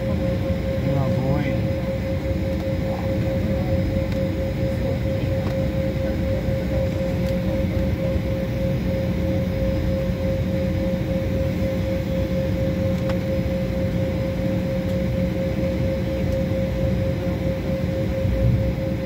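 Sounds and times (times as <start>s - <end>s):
constant high whine: 0.0s - 19.0s
engine and air-conditioning rumble: 0.0s - 19.0s.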